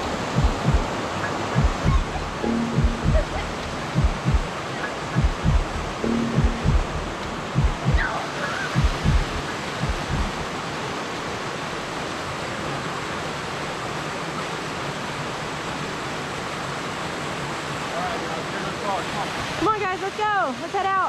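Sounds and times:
low thumps: 0.0s - 1.0s, 1.6s - 4.5s, 5.2s - 8.1s, 8.8s - 10.4s
creek water rushing: 0.0s - 21.0s.

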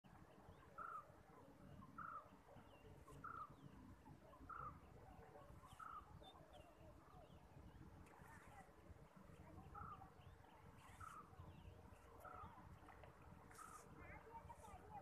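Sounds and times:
bird chirps: 0.1s - 8.4s.

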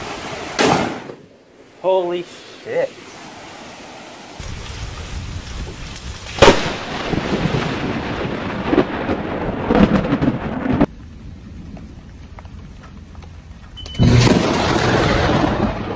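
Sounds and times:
steady rain: 1.6s - 15.9s
thunder crack and rumble: 4.4s - 12.8s, 14.0s - 15.9s.

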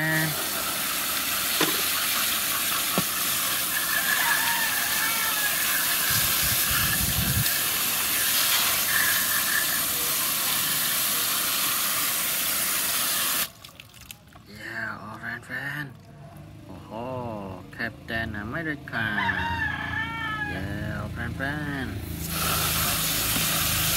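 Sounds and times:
hose spraying onto plastic: 0.0s - 13.6s, 22.1s - 23.9s.

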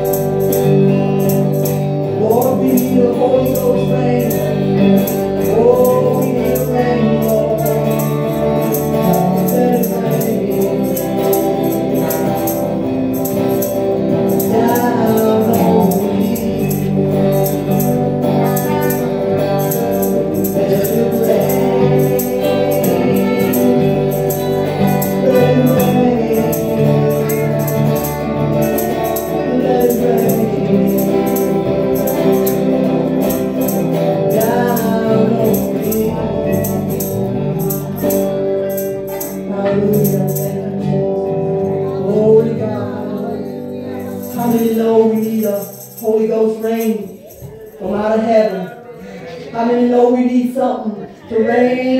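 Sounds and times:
percussion steady beat: 0.0s - 48.7s
keyboard: 0.0s - 49.4s
electric guitar: 0.0s - 51.9s
woman singing: 46.6s - 51.9s.

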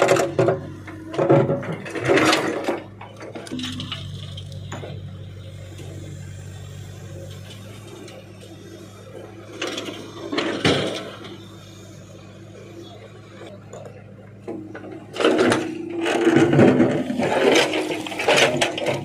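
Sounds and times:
diesel engine running: 0.0s - 19.0s
backhoe bucket scraping rock: 15.0s - 19.0s.

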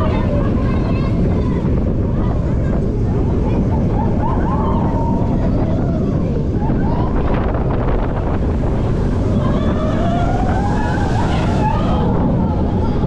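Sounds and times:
roller coaster rumbling on track: 0.0s - 13.0s
wind buffeting microphone: 0.0s - 13.0s
rising whine: 3.7s - 13.0s.

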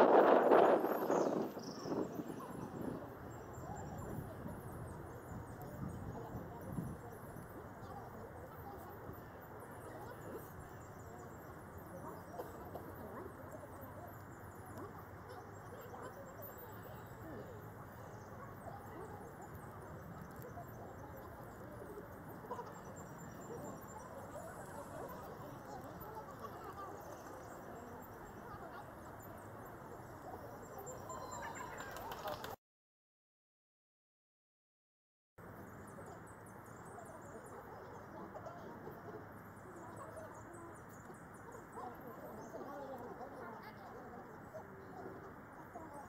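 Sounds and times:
birds chirping: 0.0s - 32.5s
distant people talking: 0.0s - 32.6s, 35.4s - 46.0s
murmur of distant voices: 0.0s - 32.6s, 35.4s - 46.0s.

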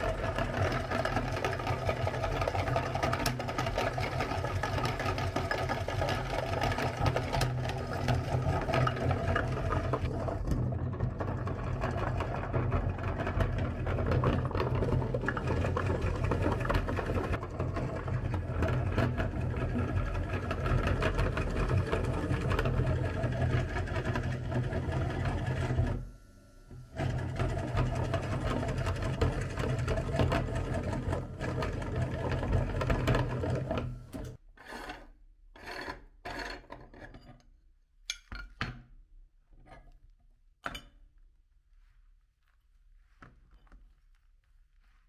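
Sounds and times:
meat grinder humming: 0.0s - 34.4s
hands crunching soap crumbs: 41.8s - 45.0s.

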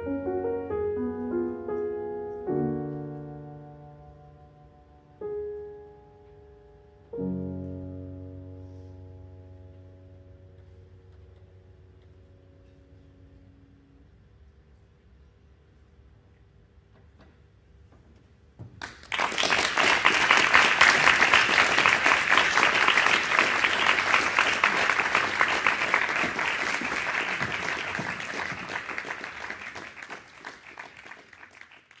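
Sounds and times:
audience applauding: 18.8s - 32.0s.

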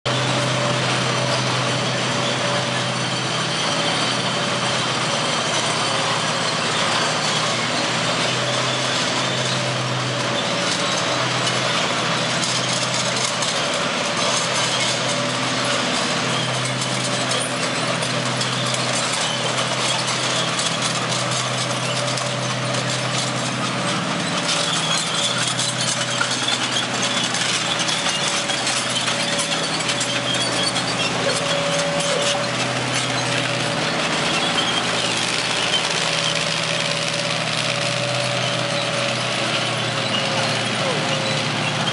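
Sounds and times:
tank engine droning: 0.1s - 41.9s.

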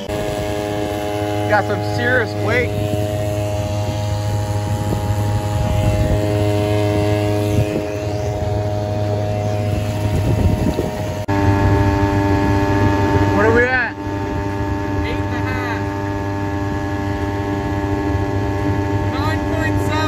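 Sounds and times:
water splashing along hull: 0.0s - 13.4s
outboard motor running: 0.0s - 20.0s.

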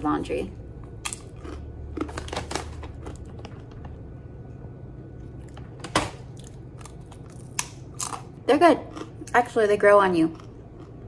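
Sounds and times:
crunching of crisp chip: 1.0s - 3.9s, 6.3s - 9.2s.

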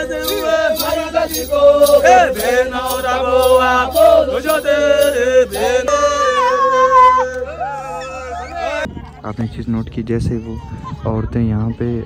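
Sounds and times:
voices chanting together: 0.0s - 8.9s.

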